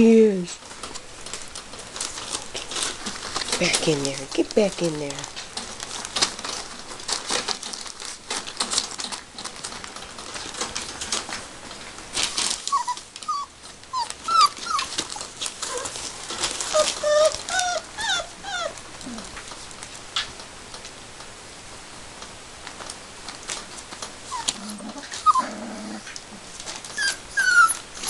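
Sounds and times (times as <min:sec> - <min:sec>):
paws scratching on newspaper: 0:00.0 - 0:20.9, 0:22.6 - 0:28.0
puppies whimpering and yipping: 0:12.6 - 0:19.3, 0:24.3 - 0:25.5, 0:26.8 - 0:28.0.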